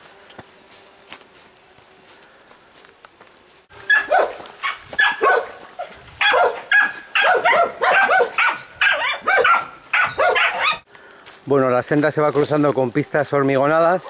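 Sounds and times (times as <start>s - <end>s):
dog barking: 3.9s - 10.8s.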